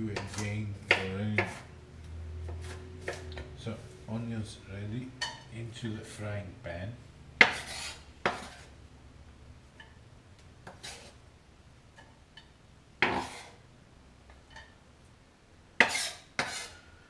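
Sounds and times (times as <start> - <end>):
knife scraping on cutting board: 0.1 - 1.7, 2.4 - 3.8, 7.4 - 8.8, 10.6 - 11.2, 13.0 - 13.6, 15.8 - 16.8.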